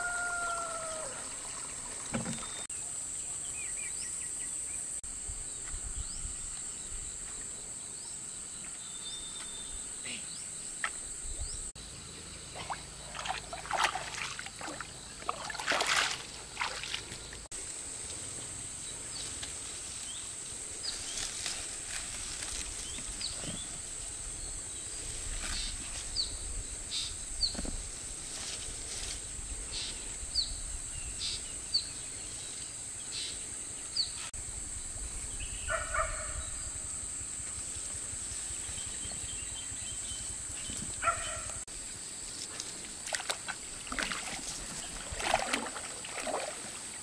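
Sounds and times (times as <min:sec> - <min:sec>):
water splashing and sloshing: 0:01.2 - 0:02.7, 0:12.5 - 0:17.5, 0:42.3 - 0:47.0.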